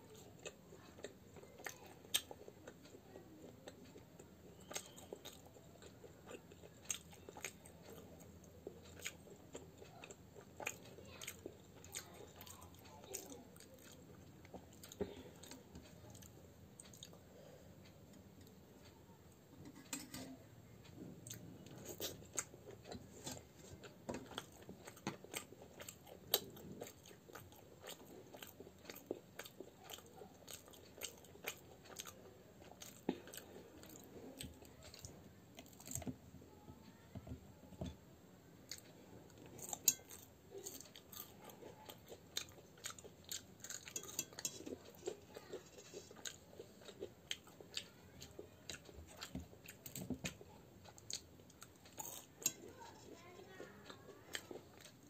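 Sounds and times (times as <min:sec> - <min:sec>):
person chewing crunchy snacks: 0:23.2 - 0:36.1, 0:38.7 - 0:52.8.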